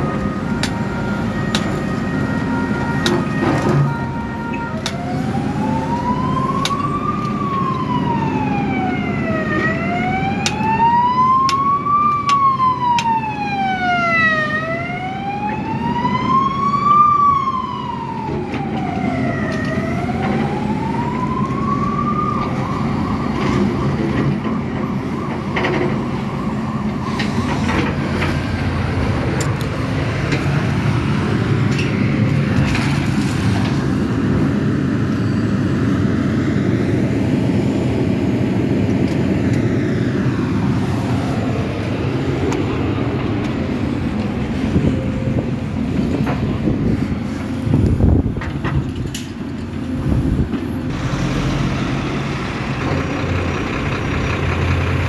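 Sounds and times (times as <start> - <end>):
siren wailing up and down: 0.0 - 32.3
excavator diesel engine: 0.0 - 55.0.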